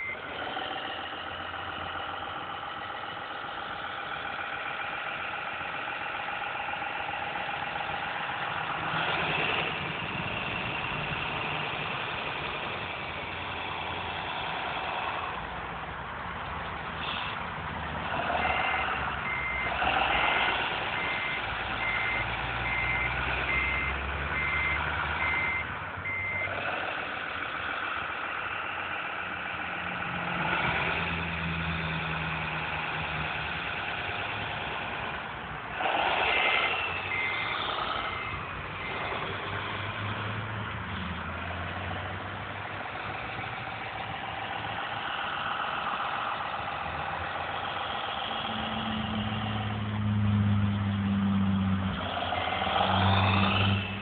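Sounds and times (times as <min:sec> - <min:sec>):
reversing beeper: 0:00.0 - 0:00.2, 0:18.4 - 0:26.6, 0:37.0 - 0:39.2
model diesel engine sound revving: 0:00.0 - 0:54.0.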